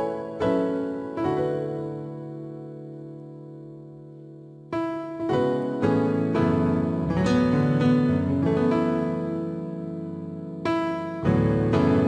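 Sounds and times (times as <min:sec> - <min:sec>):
calm plucked instrumental music: 0:02.9 - 0:12.0.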